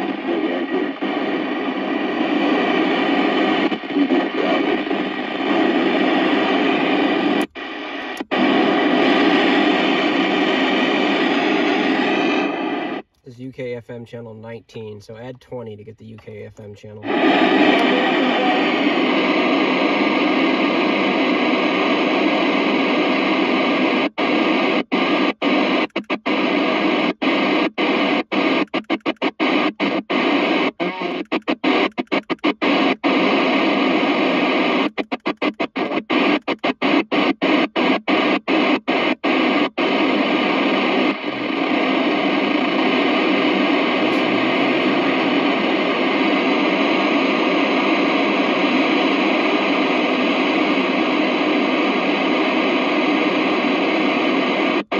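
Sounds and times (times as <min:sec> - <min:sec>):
radio static hiss: 0:00.0 - 0:54.9.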